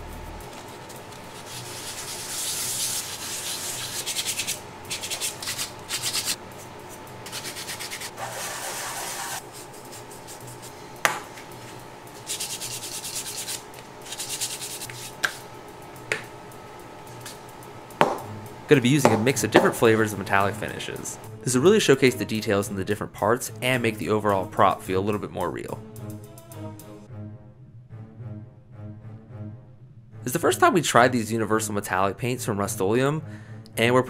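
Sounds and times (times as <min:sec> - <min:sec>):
sandpaper rasping: 0:00.5 - 0:10.8, 0:12.2 - 0:15.4
sharp knocks: 0:18.0 - 0:18.4, 0:19.0 - 0:19.8.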